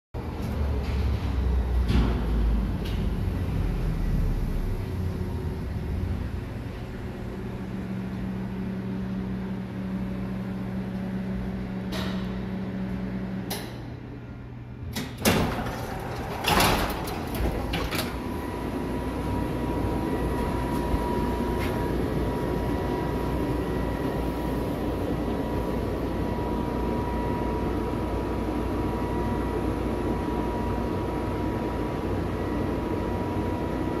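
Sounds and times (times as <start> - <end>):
low monorail hum: 0.2 - 34.0
train car running with high whine: 0.2 - 34.0
sliding doors knocking and clunking: 15.0 - 18.4.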